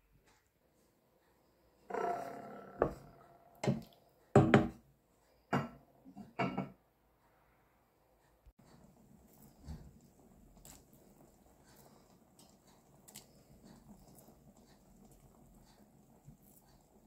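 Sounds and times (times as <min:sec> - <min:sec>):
kitchenware knocking on a steel pot: 0:04.4 - 0:04.8, 0:05.5 - 0:06.8.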